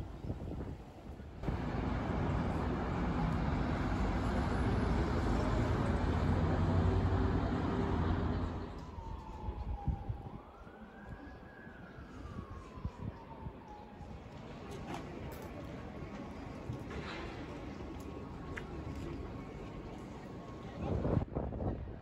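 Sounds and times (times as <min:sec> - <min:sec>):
road vehicle passing: 0:01.4 - 0:09.2
emergency vehicle siren wailing: 0:01.4 - 0:16.1.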